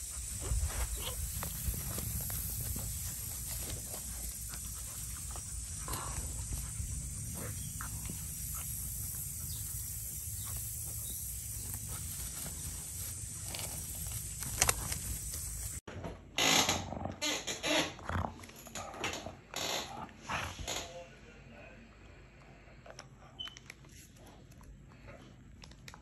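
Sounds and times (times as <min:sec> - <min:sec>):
dogs growling and grunting: 0:00.0 - 0:15.7, 0:18.0 - 0:20.8.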